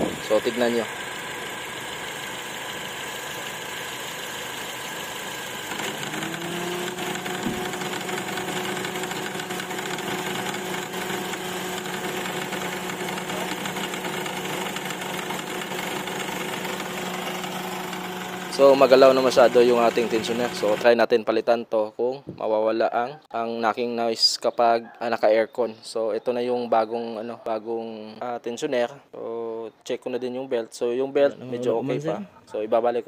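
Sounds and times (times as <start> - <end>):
car engine idling: 0.0 - 20.9.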